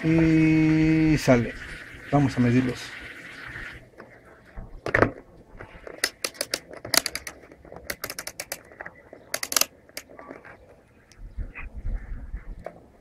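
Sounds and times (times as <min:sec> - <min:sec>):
rotary switch clicking: 0:09.3 - 0:10.1.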